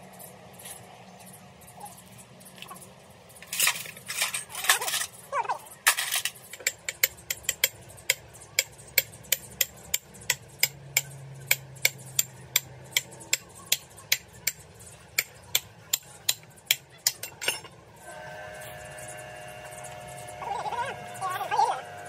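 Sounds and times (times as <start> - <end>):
steady hum: 0.0 - 22.0
metal-on-metal taps: 15.2 - 17.8.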